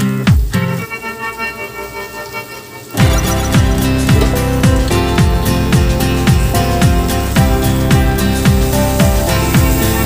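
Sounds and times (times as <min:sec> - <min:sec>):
background music with kick drum: 0:00.0 - 0:01.0, 0:03.0 - 0:10.0.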